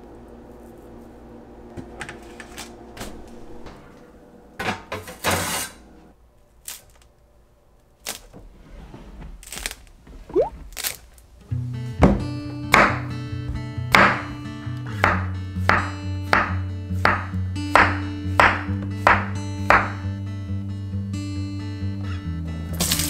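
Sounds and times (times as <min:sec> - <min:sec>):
crust crackling: 0:09.4 - 0:11.3.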